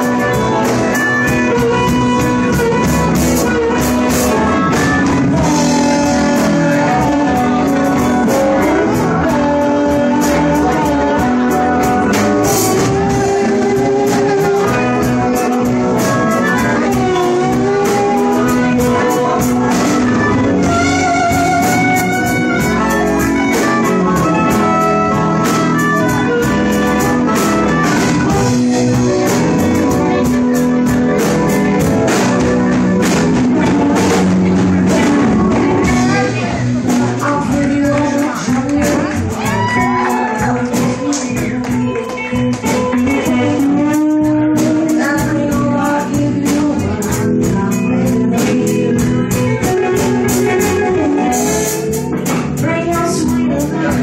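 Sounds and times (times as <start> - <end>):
harmonica: 0.0 - 36.6
drums: 0.0 - 54.0
electric guitars: 0.0 - 54.0.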